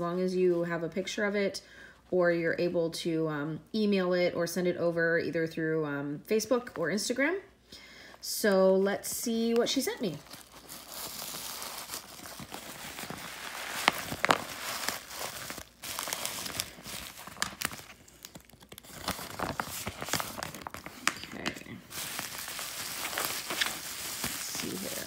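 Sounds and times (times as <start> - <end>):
plastic and bubble wrap crinkling: 8.8 - 25.0.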